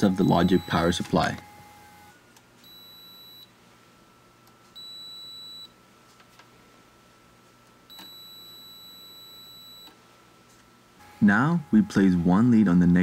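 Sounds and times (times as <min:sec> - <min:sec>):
multimeter high-pitched beeps: 0:00.0 - 0:03.5, 0:04.8 - 0:05.7, 0:07.9 - 0:10.0.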